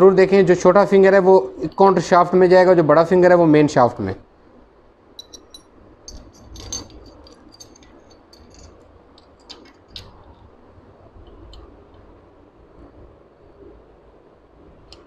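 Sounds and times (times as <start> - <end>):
metallic clicks and rattles: 5.2 - 10.6.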